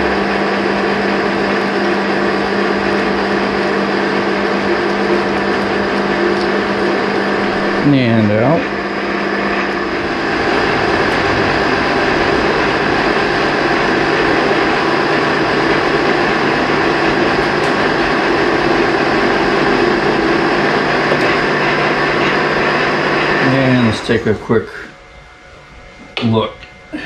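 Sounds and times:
lathe running: 0.0s - 27.0s.

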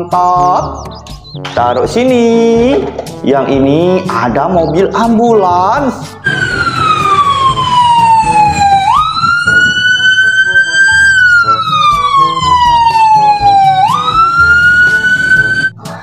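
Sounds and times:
toy electronic siren wailing: 6.2s - 15.8s.

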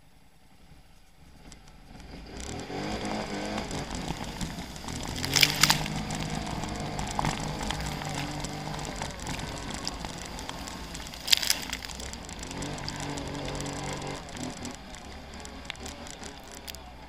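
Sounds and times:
quad bike engine: 0.1s - 17.0s
water splashing: 3.6s - 17.0s.

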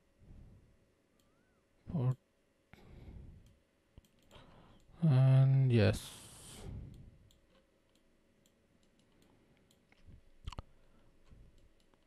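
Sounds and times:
computer mouse clicks: 3.4s - 4.9s, 6.9s - 10.7s, 11.5s - 12.0s.

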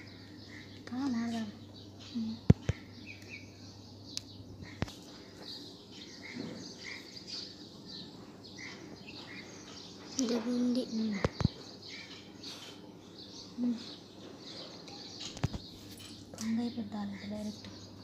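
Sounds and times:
bird chirps: 0.0s - 18.0s.

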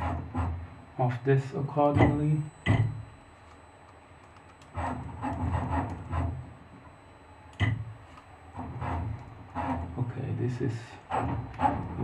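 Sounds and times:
milling machine axis drive running: 0.0s - 3.2s, 4.4s - 6.9s, 7.6s - 12.0s
sharp click: 7.5s - 8.3s.

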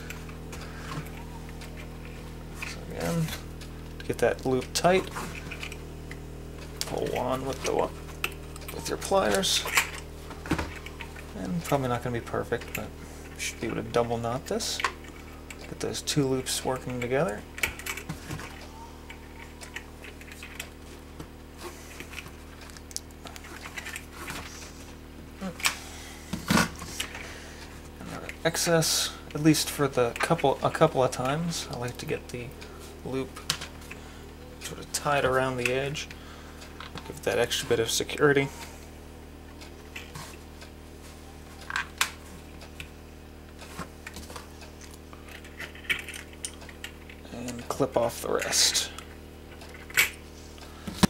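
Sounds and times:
wire twisting clicks and rustles: 0.0s - 25.8s, 43.5s - 51.0s
steady low hum: 0.0s - 51.0s.

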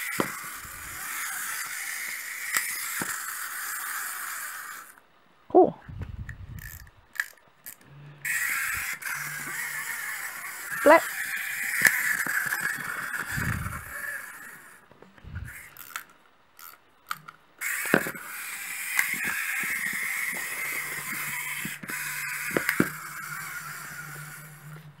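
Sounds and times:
wind-up toy motor whirring: 0.0s - 5.0s, 6.0s - 25.0s
toy knocking on table: 17.8s - 18.3s.

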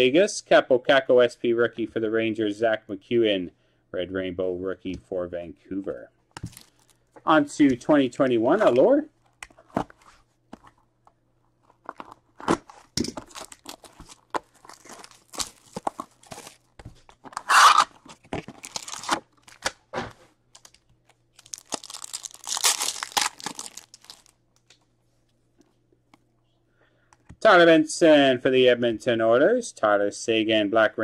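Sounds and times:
cardboard lid ripping: 11.9s - 16.6s, 17.2s - 19.7s
foil pack crinkling tear: 11.9s - 19.8s, 20.5s - 24.4s
box cutter cutting cardboard: 17.4s - 17.9s.

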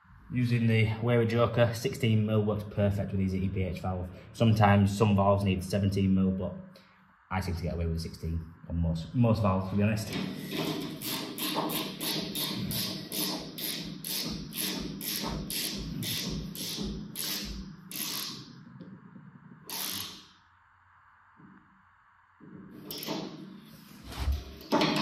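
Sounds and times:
ratchet spanner clicking: 10.6s - 18.6s, 19.7s - 20.4s
metal scrape: 22.8s - 25.0s.

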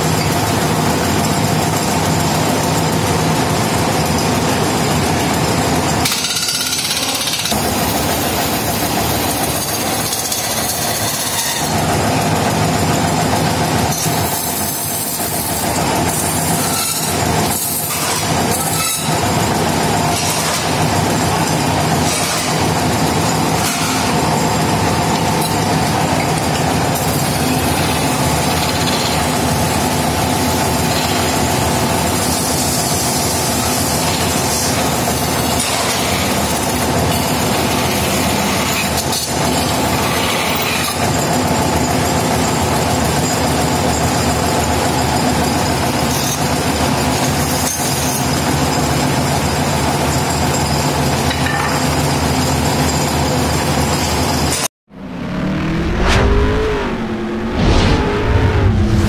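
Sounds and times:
lathe machine drone: 0.0s - 39.0s, 54.9s - 59.0s.

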